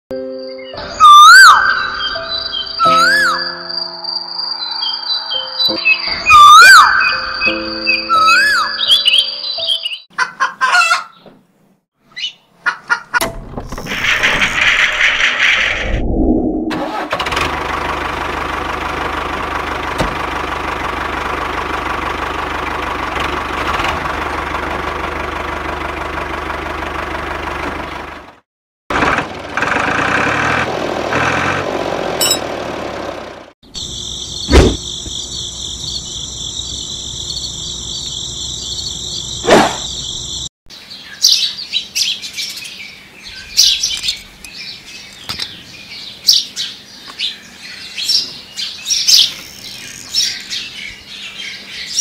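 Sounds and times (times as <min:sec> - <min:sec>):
birds chirping: 0:00.4 - 0:11.4, 0:33.7 - 0:52.0.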